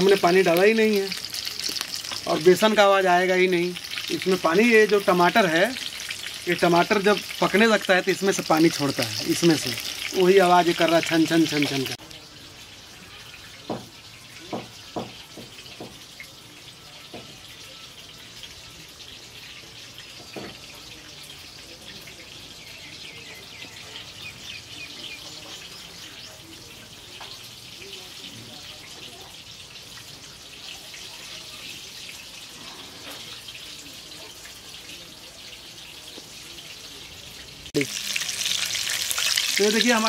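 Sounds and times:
pakoras deep-frying in hot oil: 0:00.0 - 0:40.0.

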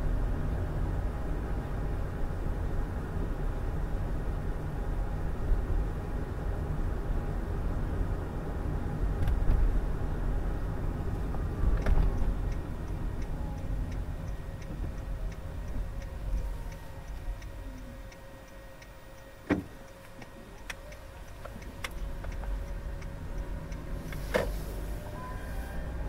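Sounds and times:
engine and road rumble: 0:00.0 - 0:26.0
turn signal ticking: 0:10.5 - 0:26.0.

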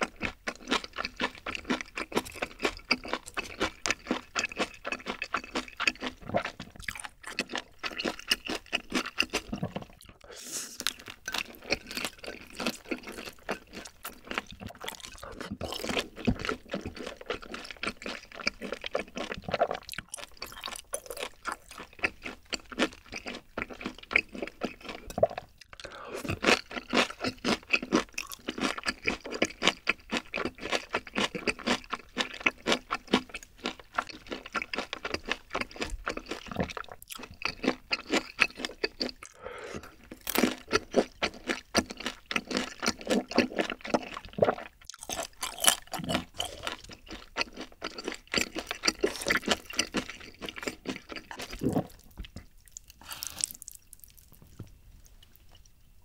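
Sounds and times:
close chewing of noodles: 0:00.0 - 0:55.9
wet sticky mouth sounds: 0:48.7 - 0:54.6.

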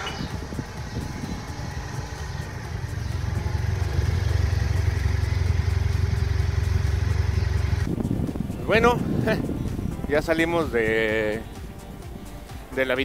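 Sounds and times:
motorcycle engine running: 0:00.0 - 0:08.5.

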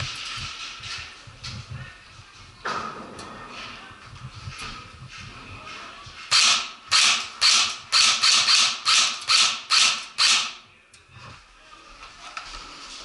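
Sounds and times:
airsoft rifle shots: 0:06.3 - 0:10.6.

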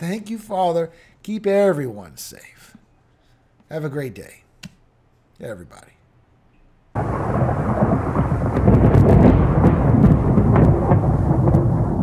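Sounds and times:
thunder crackles: 0:07.0 - 0:12.0
thunder crash and rumble: 0:07.0 - 0:12.0.

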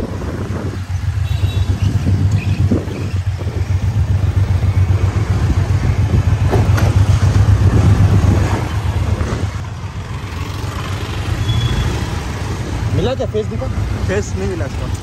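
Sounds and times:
wind noise: 0:00.0 - 0:09.8
motorcycle engine rumble: 0:00.0 - 0:15.0.

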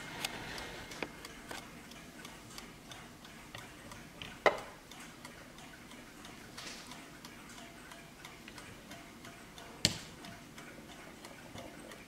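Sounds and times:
mantel clock ticking: 0:00.0 - 0:12.0.

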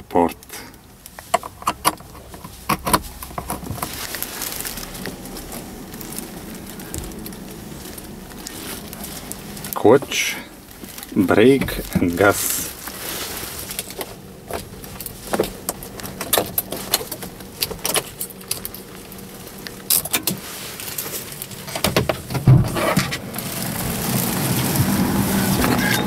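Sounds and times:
low hum: 0:00.8 - 0:20.0.

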